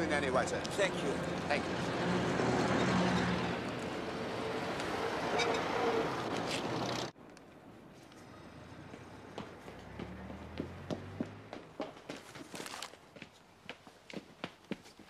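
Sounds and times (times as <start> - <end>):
street noise: 0.0 - 15.0.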